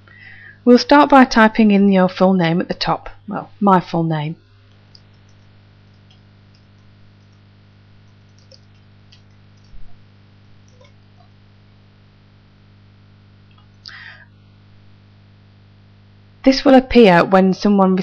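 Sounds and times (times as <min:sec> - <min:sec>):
low electrical hum: 0:00.0 - 0:18.0
keyboard clicks: 0:04.7 - 0:10.0, 0:10.6 - 0:11.0.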